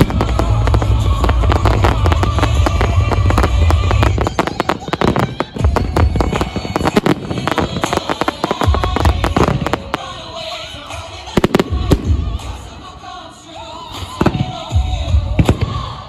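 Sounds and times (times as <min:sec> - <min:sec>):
deep firework booms: 0:00.0 - 0:09.9
sharp firework bangs: 0:00.0 - 0:10.2
firework crackle: 0:00.0 - 0:16.0.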